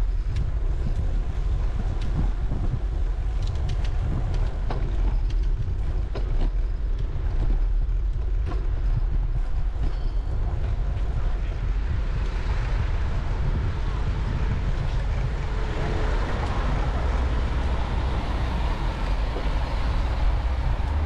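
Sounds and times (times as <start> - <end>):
wind rumble on microphone: 0.0 - 21.0
bicycle clicks and rattles: 0.2 - 11.0.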